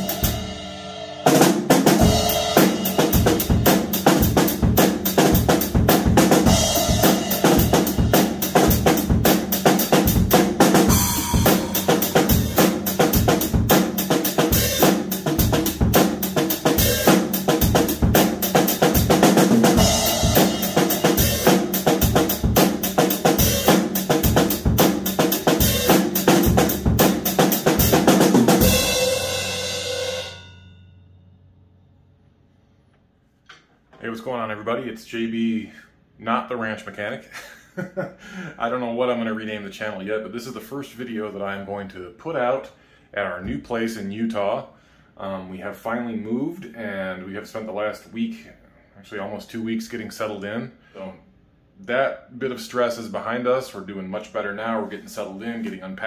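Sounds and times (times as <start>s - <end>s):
drum kit playing: 0.0s - 30.6s
cymbal ringing: 28.6s - 31.8s.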